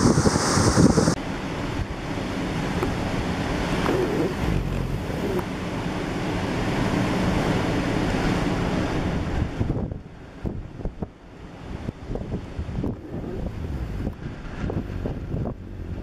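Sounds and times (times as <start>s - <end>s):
wind buffeting microphone: 0.0s - 2.0s, 8.6s - 16.0s
storm surf surging: 0.0s - 16.0s.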